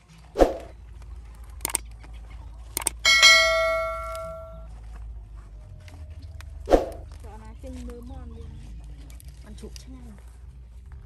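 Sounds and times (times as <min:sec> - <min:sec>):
mouse clicks: 0:01.6 - 0:01.8, 0:02.8 - 0:03.0
bright bell ding: 0:03.1 - 0:04.6.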